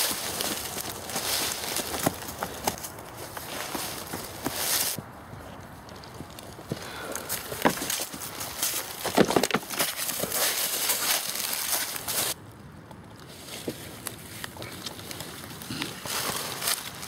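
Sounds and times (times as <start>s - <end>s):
footsteps running through dry leaves: 0.0s - 5.0s, 6.8s - 12.4s, 14.8s - 17.0s.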